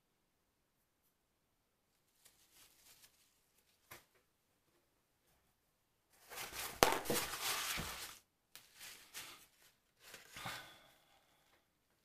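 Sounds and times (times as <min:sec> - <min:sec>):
paper towel rustling: 0:01.9 - 0:04.1, 0:06.2 - 0:10.4.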